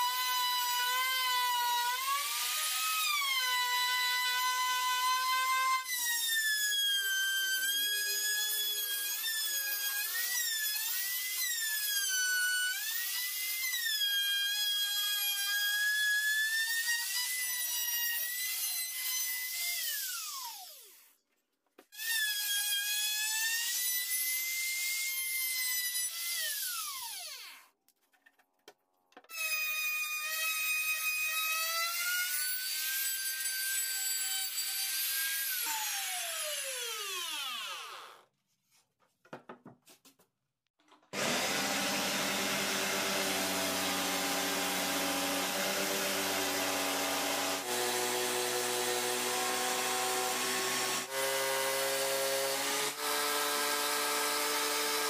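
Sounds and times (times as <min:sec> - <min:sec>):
trim router whining: 0:41.2 - 0:55.0.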